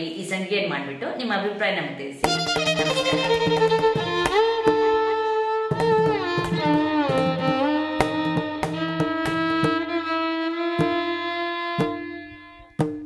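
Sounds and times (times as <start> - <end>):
percussive strikes: 2.2 - 13.0
melody with bending notes: 2.3 - 10.4.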